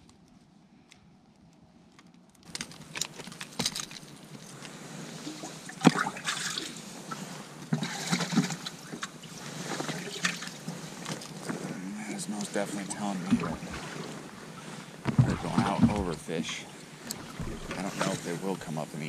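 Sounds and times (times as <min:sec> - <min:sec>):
water splashing and trickling: 0:03.8 - 0:19.0.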